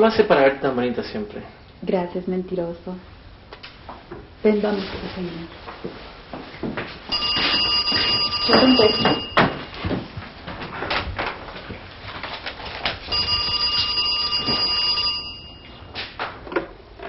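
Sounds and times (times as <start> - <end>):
landline telephone ringing: 7.1 - 9.7, 13.1 - 15.9.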